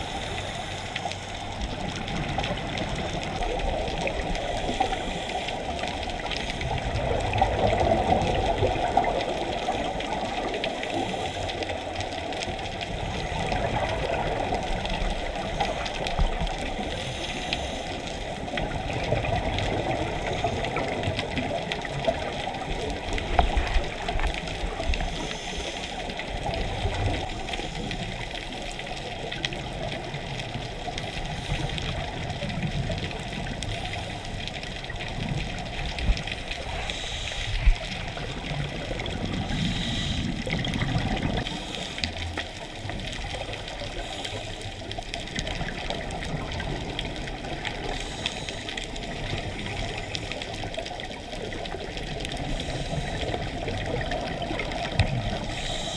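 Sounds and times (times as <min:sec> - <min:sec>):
underwater bubbles rushing: 0:00.0 - 0:55.9
regulator breathing: 0:39.5 - 0:40.6, 0:55.4 - 0:55.9.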